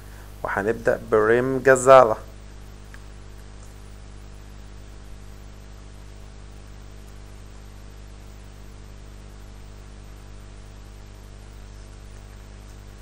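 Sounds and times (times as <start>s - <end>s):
even hiss: 0.0s - 5.6s
electrical mains hum: 0.0s - 13.0s.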